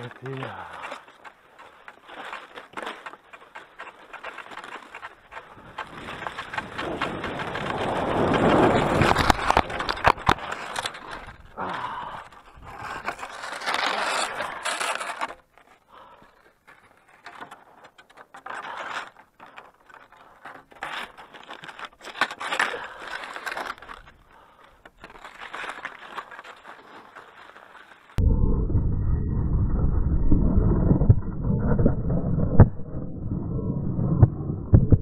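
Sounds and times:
skis scraping on snow: 0.0 - 11.5, 12.3 - 15.8, 18.4 - 28.2.

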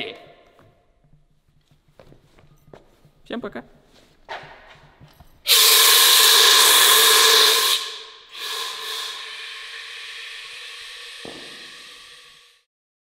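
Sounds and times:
fire extinguisher hissing: 5.5 - 12.7.

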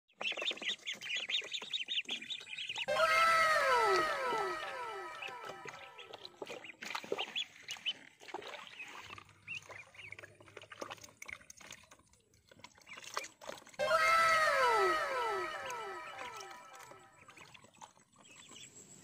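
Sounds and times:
ducklings peeping: 0.2 - 10.4
water splashing in plastic tub: 3.8 - 14.0.

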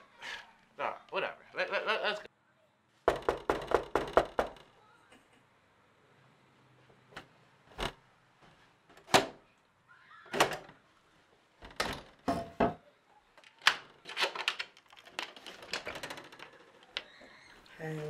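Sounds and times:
knocks on wooden door: 3.1 - 4.7.

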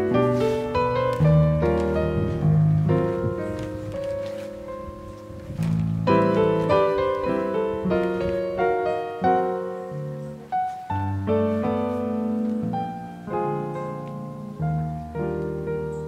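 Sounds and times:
piano music: 0.0 - 16.0.

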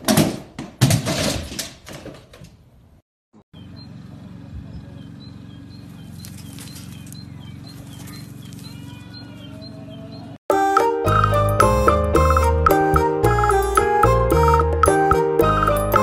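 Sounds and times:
bird chirps: 3.6 - 10.4
loud music: 10.5 - 16.0.

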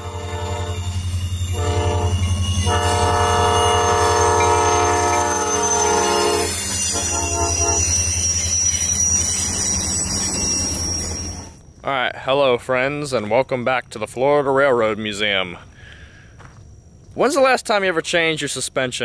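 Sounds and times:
locomotive air horn blasts: 0.0 - 8.0.

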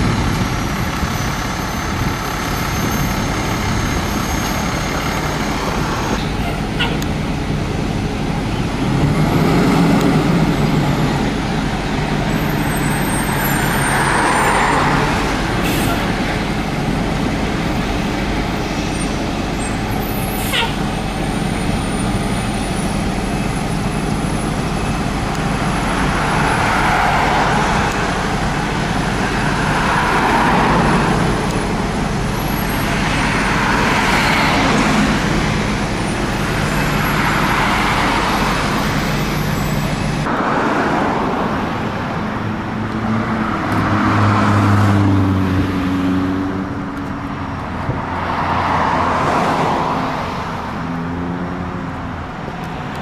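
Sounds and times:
diesel engine running: 0.0 - 40.5
cars passing: 0.0 - 53.0.

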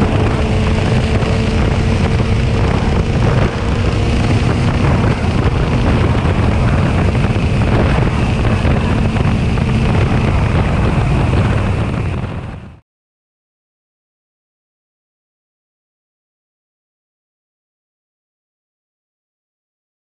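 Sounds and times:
vehicle engine at full throttle: 0.0 - 12.8
wind rush on microphone: 0.0 - 12.8.

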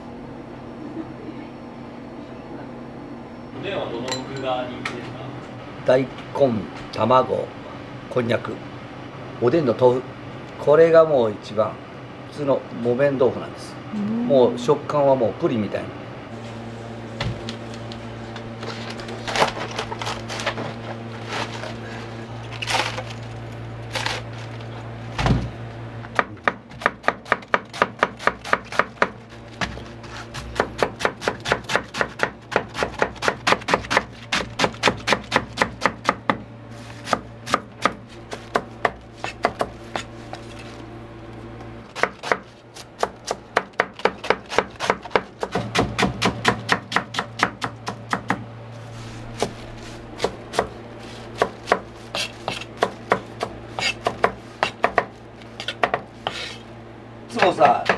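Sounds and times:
steady low hum: 0.0 - 57.9
knife chopping on cutting board: 26.1 - 36.4, 37.0 - 40.4, 42.0 - 48.4, 49.3 - 56.6, 57.4 - 57.9.

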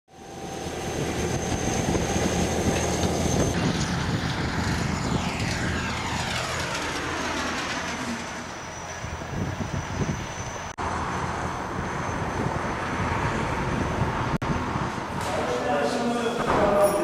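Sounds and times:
aircraft engines droning: 0.1 - 16.5
hissing sweep falling in pitch: 3.3 - 10.7.

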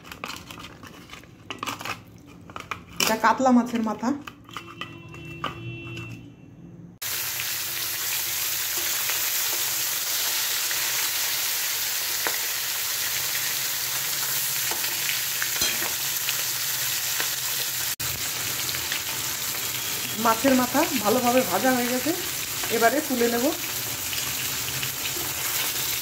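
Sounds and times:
fish frying in hot oil: 7.0 - 26.0.

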